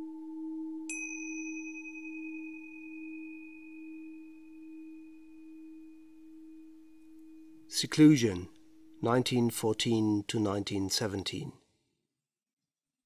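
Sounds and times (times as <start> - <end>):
low ringing tone: 0.0 - 10.2
struck high chime: 0.9 - 10.0.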